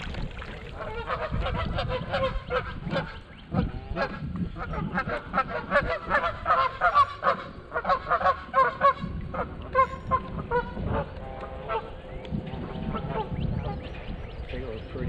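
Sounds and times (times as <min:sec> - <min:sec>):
geese honking: 0:04.7 - 0:12.0.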